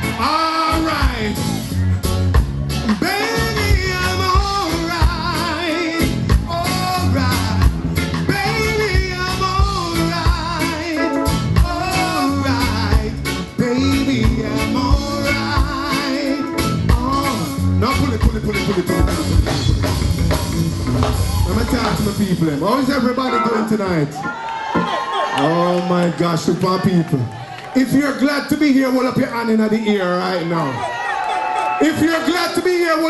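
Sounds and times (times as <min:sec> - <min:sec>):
reggae band playing: 0:00.0 - 0:33.0
man singing with vibrato: 0:02.9 - 0:19.7.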